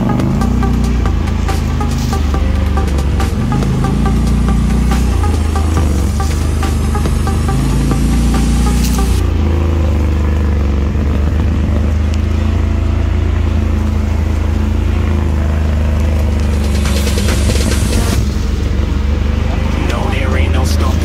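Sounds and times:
buggy engine running: 0.0 - 21.0.

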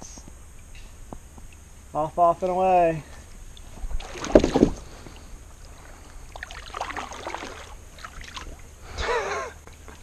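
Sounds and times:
low steady rumble: 0.0 - 10.0
water dripping: 3.4 - 8.8
kayak paddle splashing: 3.5 - 9.0.

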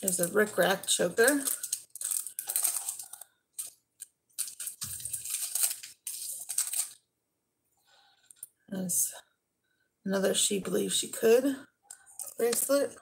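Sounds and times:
rustling and rummaging through jewelry: 0.0 - 7.0, 11.9 - 12.9.

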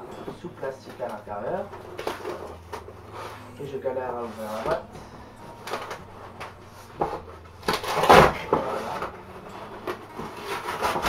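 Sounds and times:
cardboard box tearing: 7.0 - 9.1, 9.8 - 11.0.

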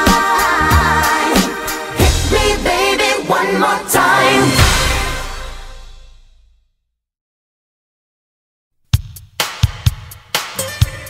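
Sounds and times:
loud dance music: 0.0 - 5.6.

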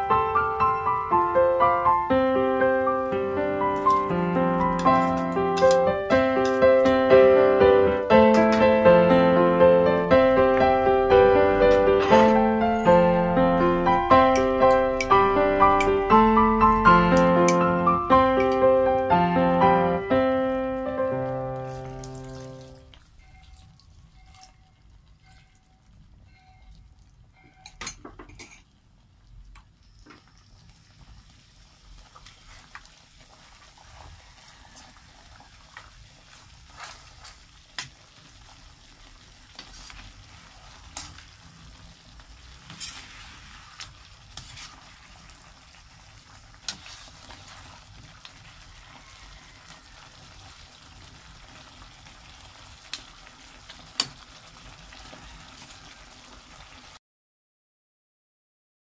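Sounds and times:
pork sizzling in a metal pan: 3.8 - 7.2, 21.4 - 24.6, 29.9 - 57.0
spatula scraping a pan: 39.6 - 41.2, 42.6 - 45.2.

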